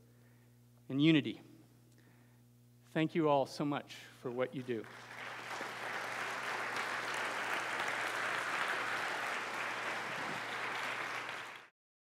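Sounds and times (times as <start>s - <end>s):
audience applauding: 4.6s - 11.7s.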